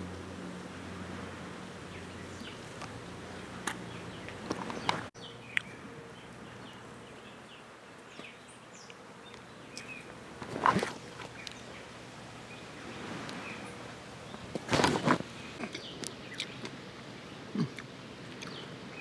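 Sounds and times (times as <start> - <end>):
outdoor background noise: 0.0 - 19.0
coconut husk tearing: 10.4 - 11.6, 14.5 - 16.7.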